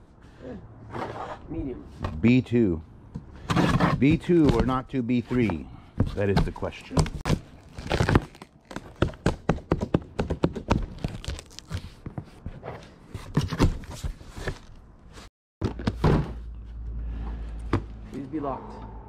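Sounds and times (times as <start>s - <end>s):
boxes knocking and thunking: 3.2s - 11.2s, 11.8s - 14.7s, 15.6s - 16.6s.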